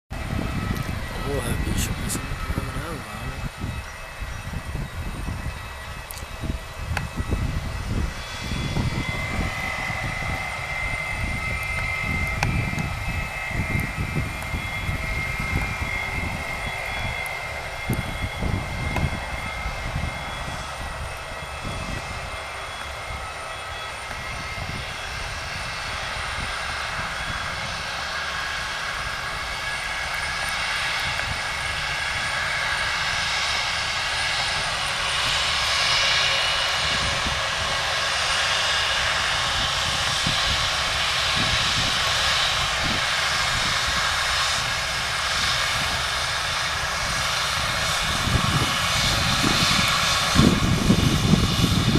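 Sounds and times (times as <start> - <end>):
wind rumble on microphone: 0.1 - 23.4, 24.1 - 51.9
jet engines whining: 0.1 - 51.9.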